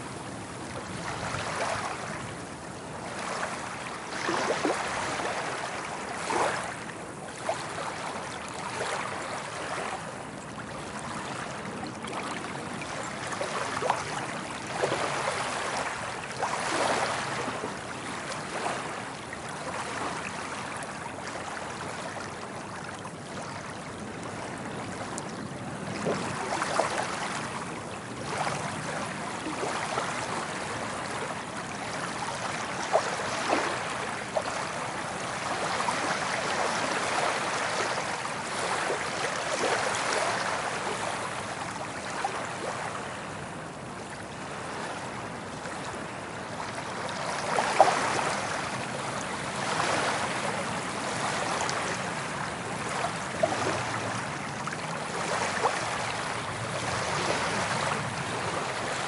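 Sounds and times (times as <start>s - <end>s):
ocean waves washing on beach: 0.0s - 59.0s
small water splashes: 0.7s - 43.2s, 44.1s - 59.0s.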